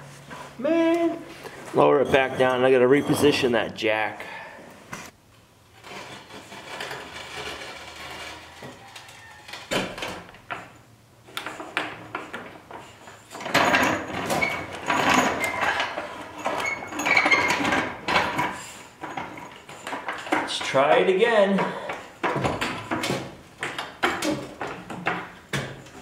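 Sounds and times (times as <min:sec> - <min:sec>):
jack scraping on concrete: 0:05.7 - 0:09.3.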